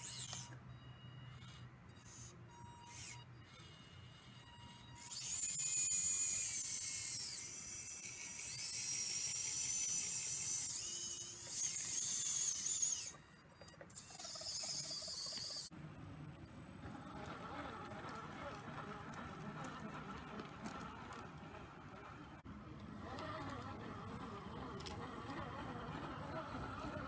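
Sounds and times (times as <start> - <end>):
hydraulic pump whining: 0.0 - 27.0.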